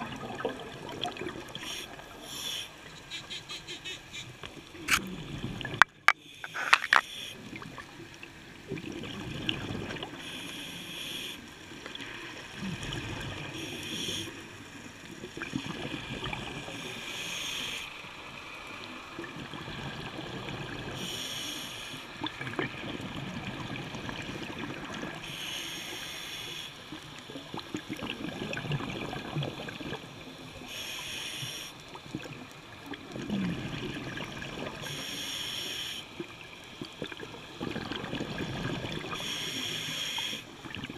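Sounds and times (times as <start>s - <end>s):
hissing bursts: 1.6s - 4.3s.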